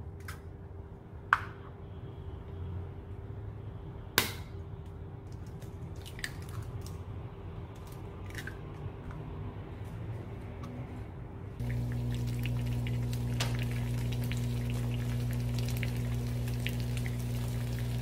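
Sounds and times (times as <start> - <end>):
low steady hum: 10.4 - 18.0.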